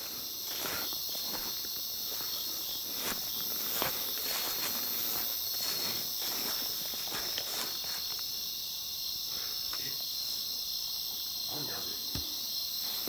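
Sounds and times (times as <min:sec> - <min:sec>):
soft footsteps on ground: 0:00.0 - 0:08.5
insects buzzing: 0:00.0 - 0:13.0.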